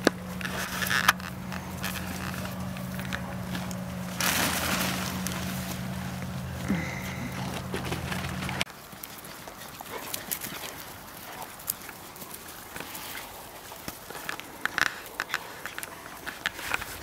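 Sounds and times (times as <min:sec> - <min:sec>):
puppies scampering on grass: 0:00.0 - 0:17.0.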